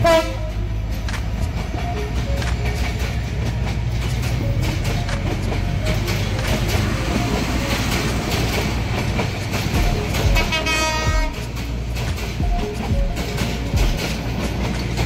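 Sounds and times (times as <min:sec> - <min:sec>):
train horn: 0:00.0 - 0:00.8, 0:10.2 - 0:11.6
train rumbling past: 0:00.0 - 0:15.0
wheels clattering over rail joints: 0:00.0 - 0:15.0.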